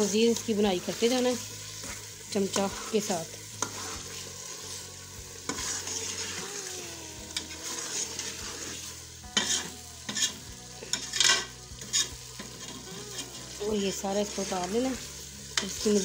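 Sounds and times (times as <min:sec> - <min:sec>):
food sizzling: 0:00.0 - 0:16.0
metal spoon scraping a pot: 0:01.7 - 0:04.3, 0:05.4 - 0:06.4, 0:07.3 - 0:13.6.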